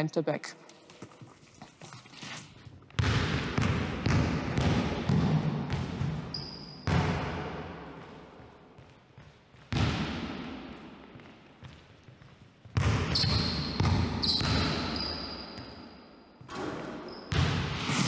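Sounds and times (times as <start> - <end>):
basketball bouncing on wooden floor: 3.0 - 17.8
shoe squeak: 6.3 - 6.9, 13.1 - 15.8, 16.9 - 18.0.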